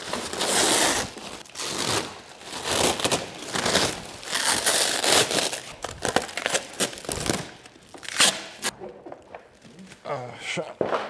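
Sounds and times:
plastic stretch wrap crinkling: 0:00.0 - 0:10.2.

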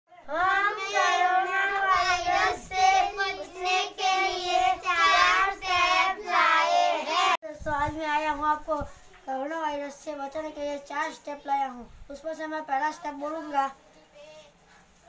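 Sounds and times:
child singing: 0:00.1 - 0:08.8.

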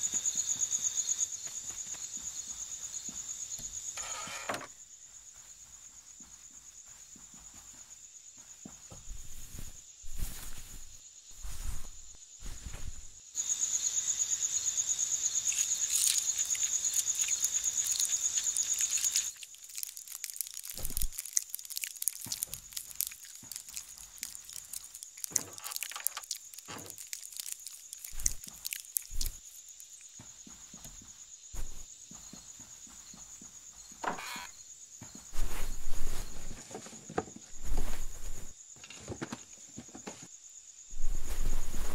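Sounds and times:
cricket chirping: 0:00.0 - 0:41.9
soft knocks and thuds: 0:08.7 - 0:13.2, 0:30.2 - 0:34.3.

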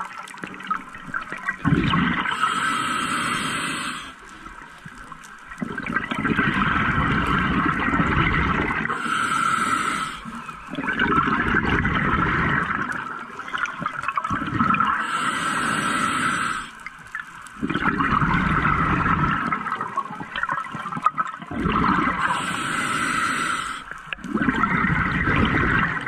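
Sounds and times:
diver exhaling bubbling air: 0:01.6 - 0:04.2, 0:05.6 - 0:13.0, 0:17.6 - 0:19.8, 0:21.5 - 0:26.0
hissing regulator inhalation: 0:01.8 - 0:04.4, 0:06.3 - 0:12.8, 0:14.4 - 0:16.9, 0:21.7 - 0:26.0.

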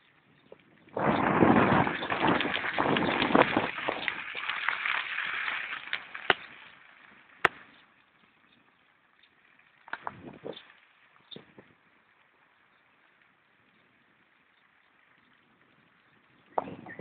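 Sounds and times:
rolling thunder: 0:01.0 - 0:04.2.

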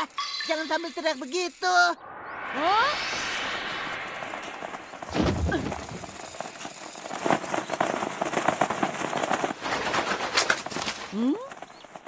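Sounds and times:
low thump: 0:03.2 - 0:06.0
flapping wings of crows: 0:05.0 - 0:12.0.

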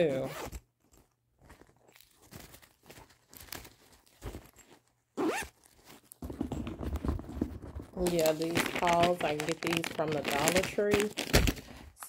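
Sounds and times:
zipper rasping: 0:00.1 - 0:01.0, 0:04.2 - 0:06.5.

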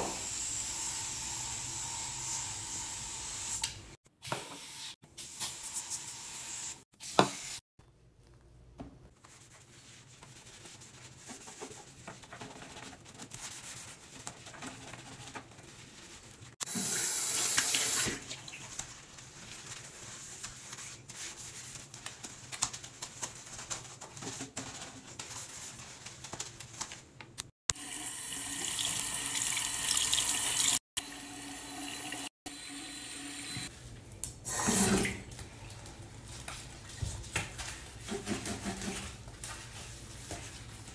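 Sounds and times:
sponge scrubbing sink: 0:09.2 - 0:26.0, 0:34.5 - 0:40.9
tap water running: 0:16.6 - 0:18.6, 0:27.7 - 0:33.7, 0:34.5 - 0:35.4.

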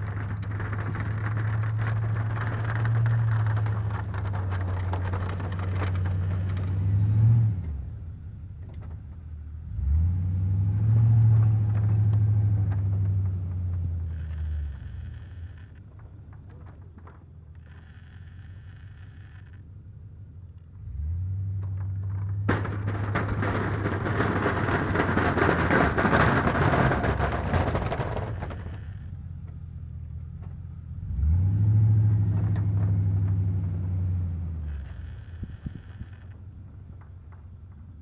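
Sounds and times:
plow blade scraping snow: 0:00.0 - 0:08.0, 0:22.5 - 0:29.2
truck engine revving: 0:00.0 - 0:08.0, 0:09.6 - 0:15.6, 0:20.8 - 0:29.1, 0:31.0 - 0:36.1.

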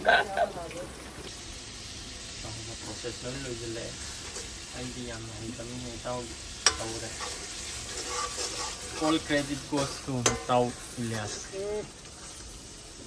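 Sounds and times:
curry sizzling in a pan: 0:00.0 - 0:13.0
ladle clinking against pan: 0:06.6 - 0:07.4, 0:10.2 - 0:10.6
metal ladle stirring: 0:06.6 - 0:11.6.

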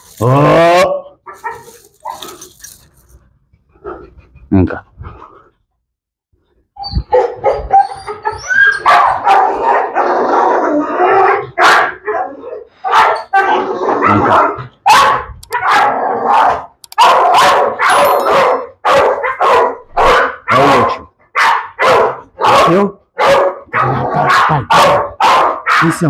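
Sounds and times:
dog barking: 0:01.2 - 0:02.3, 0:07.0 - 0:26.0.

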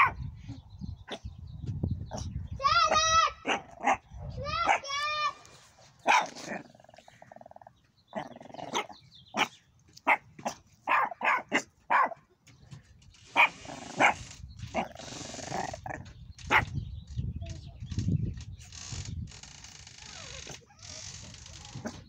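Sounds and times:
puppy yapping: 0:03.4 - 0:04.0, 0:04.6 - 0:05.0, 0:06.0 - 0:06.6, 0:10.9 - 0:12.2, 0:13.4 - 0:15.8.

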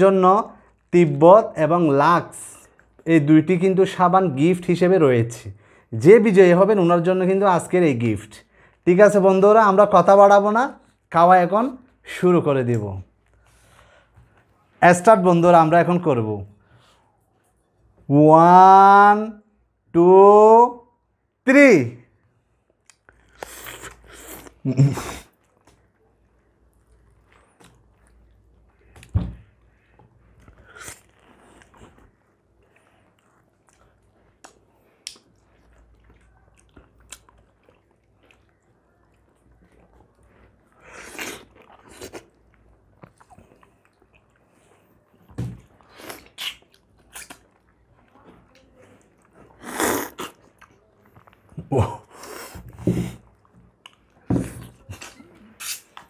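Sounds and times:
people chewing fruit: 0:13.0 - 0:14.8, 0:22.2 - 0:56.0
wet smacks and clicks: 0:22.7 - 0:24.6, 0:26.7 - 0:29.2, 0:33.2 - 0:40.1, 0:45.6 - 0:47.8.

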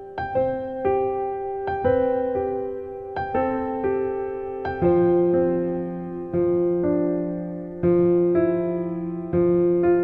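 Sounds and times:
slow piano melody: 0:00.0 - 0:10.0.

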